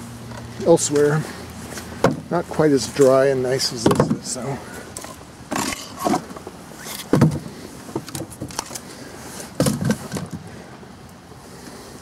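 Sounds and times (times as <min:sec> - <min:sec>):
firewood knocking: 0:02.0 - 0:02.3.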